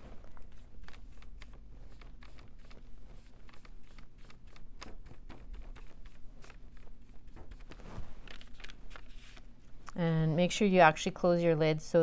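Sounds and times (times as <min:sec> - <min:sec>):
paintbrush clicking and scratching: 0:00.2 - 0:09.4.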